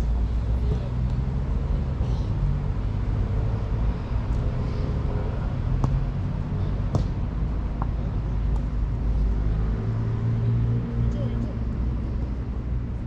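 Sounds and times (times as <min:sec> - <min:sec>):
ball being kicked: 0:06.9 - 0:07.2.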